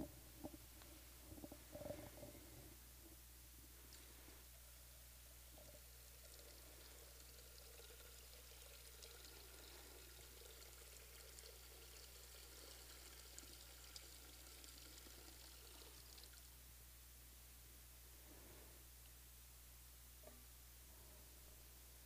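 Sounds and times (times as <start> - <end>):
low steady hum: 0.0 - 22.0
water trickling into a font: 5.8 - 16.5.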